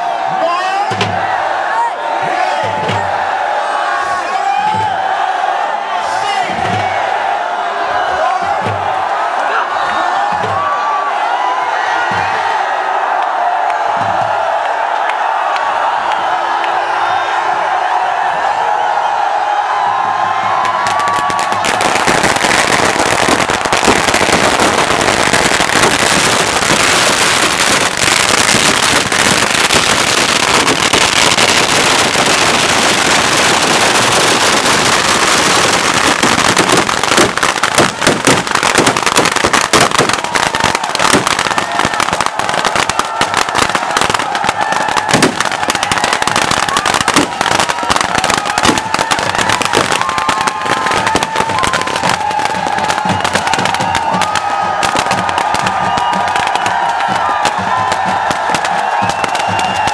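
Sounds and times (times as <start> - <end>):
fireworks crackling: 20.5 - 59.9.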